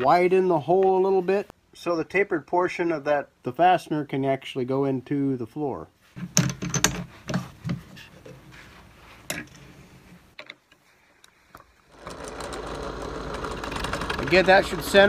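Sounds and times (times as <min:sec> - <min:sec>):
drill press motor humming: 0:11.9 - 0:15.0.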